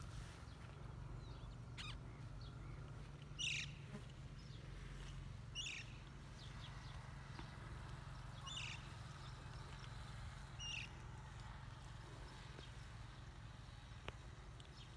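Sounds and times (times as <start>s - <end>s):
faint short bird calls: 1.4s - 2.8s.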